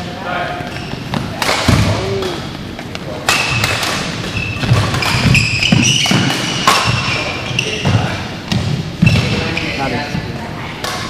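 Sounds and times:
shoes squeaking on court: 0.6s - 10.3s
racket hitting shuttlecock: 1.1s - 2.4s, 3.2s - 7.1s.

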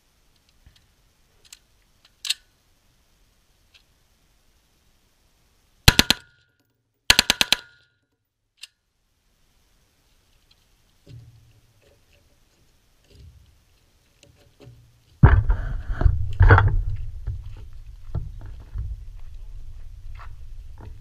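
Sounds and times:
wind buffeting microphone: 15.2s - 21.0s
footsteps on gravel: 16.7s - 21.0s.

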